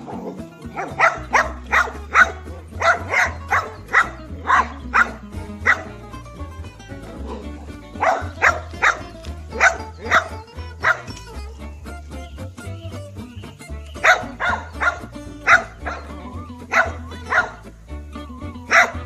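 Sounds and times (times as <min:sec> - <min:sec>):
dog barking: 0:00.0 - 0:05.9, 0:08.0 - 0:11.1, 0:14.0 - 0:16.1, 0:16.7 - 0:17.6, 0:18.7 - 0:19.0
background music with bass: 0:00.0 - 0:19.0.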